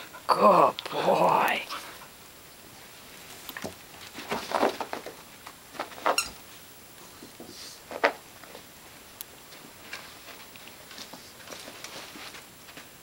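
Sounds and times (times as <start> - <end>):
dog scuffling and clicking: 3.5 - 6.3.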